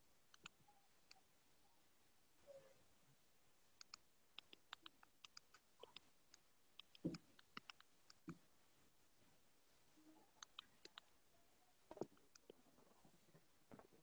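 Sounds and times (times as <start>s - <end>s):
mouse and keyboard clicks: 0.3s - 1.2s, 3.8s - 8.4s, 10.4s - 11.1s, 11.9s - 12.6s.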